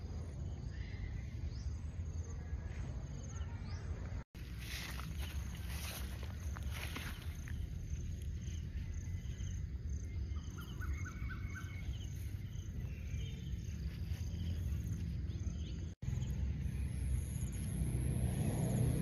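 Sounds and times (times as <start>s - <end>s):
birds chirping: 0.0s - 17.6s
insects chirping: 4.4s - 19.0s.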